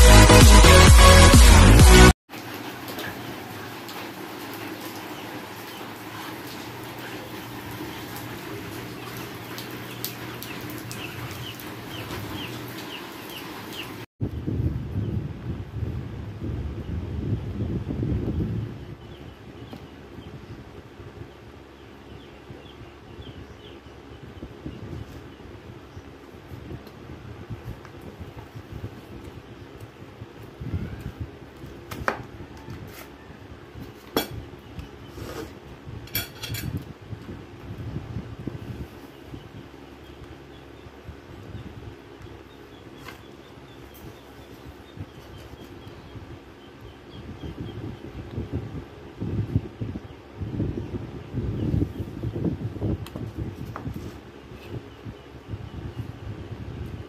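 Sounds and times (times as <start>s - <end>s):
water drips: 2.3s - 14.0s
rain hissing: 2.3s - 14.1s
cutlery clinking against dishes: 36.1s - 36.8s.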